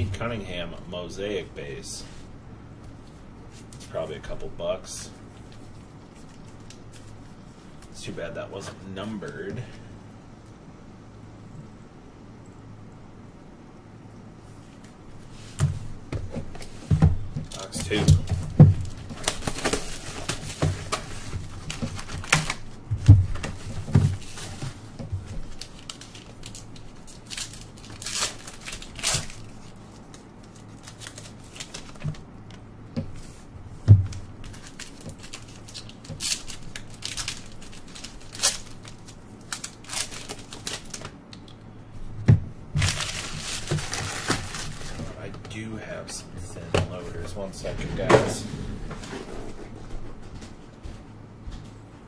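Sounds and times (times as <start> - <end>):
plastic wrappers crinkling and tearing: 5.3 - 7.9, 17.4 - 32.3, 34.1 - 41.7, 42.8 - 45.2.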